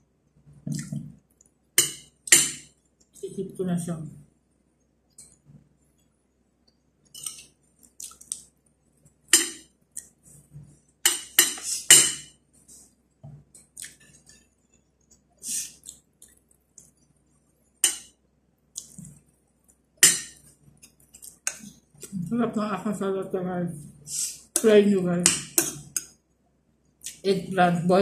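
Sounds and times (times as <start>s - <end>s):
cutlery clinking on ceramic plate: 7.2s - 7.4s, 11.0s - 12.3s, 17.8s - 18.1s, 20.0s - 20.4s.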